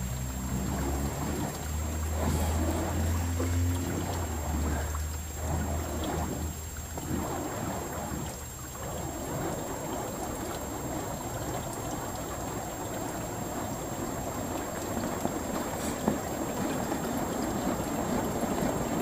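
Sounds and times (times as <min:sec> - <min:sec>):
whoosh of swinging flames: 0:00.4 - 0:11.0.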